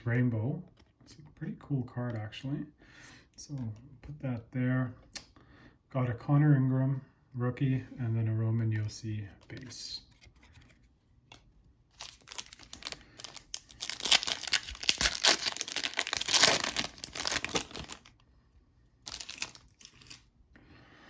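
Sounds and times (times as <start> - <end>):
foil wrapper tearing and crinkling: 12.0 - 18.1, 19.1 - 20.2
wrapper rustle: 12.0 - 18.1, 19.0 - 20.2.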